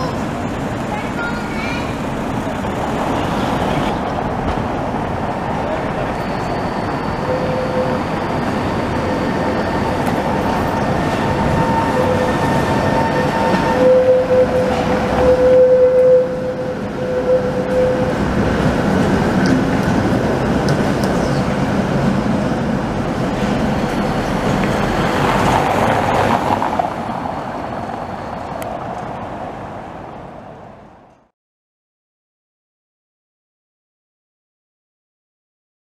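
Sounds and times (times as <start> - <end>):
street traffic noise: 0.0 - 31.3
trams rumbling on rails: 0.0 - 31.3
wheels squealing in curve: 5.7 - 21.7.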